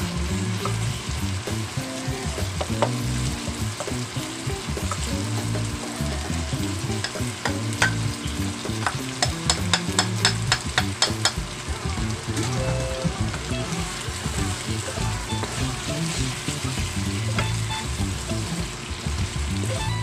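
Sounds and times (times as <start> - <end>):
meat sizzling in oil: 0.0 - 20.0
spoon tapping on pan: 2.6 - 3.0, 7.0 - 8.1, 8.7 - 11.4
wooden spatula stirring in pan: 13.3 - 19.5.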